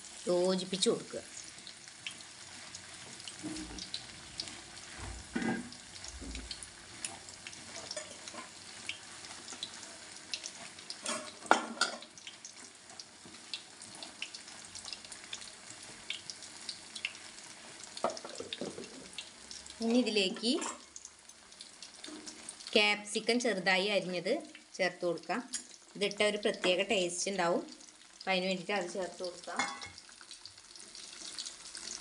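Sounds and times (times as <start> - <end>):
food sizzling in hot pan: 0.0 - 32.0.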